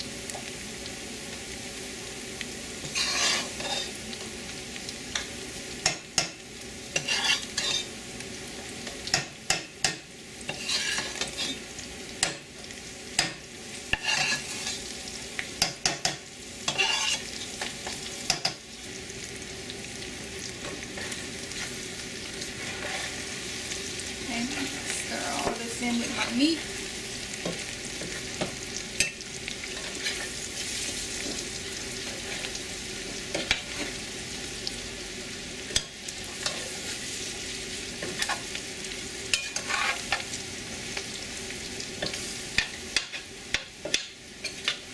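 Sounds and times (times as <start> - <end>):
frying sizzle: 0.0 - 44.9
spoon scraping metal pot: 7.0 - 7.9, 10.5 - 11.6, 16.7 - 17.3.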